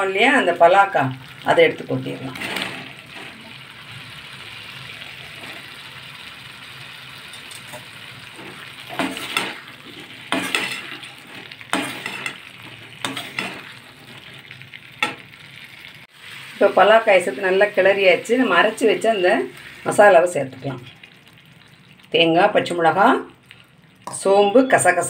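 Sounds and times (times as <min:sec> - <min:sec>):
food frying hiss: 0:00.0 - 0:25.0
spatula scraping a pan: 0:07.2 - 0:15.3.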